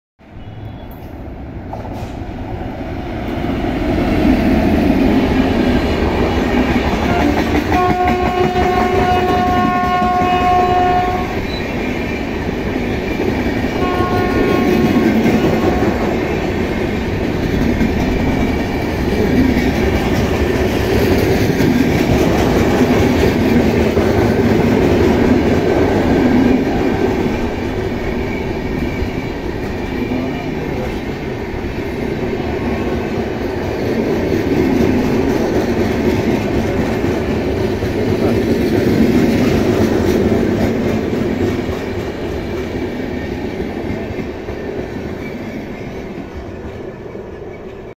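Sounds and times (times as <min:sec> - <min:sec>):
train wheels rumbling and clattering: 0:00.6 - 0:47.9
train horn blasts: 0:07.0 - 0:11.4, 0:13.8 - 0:16.3.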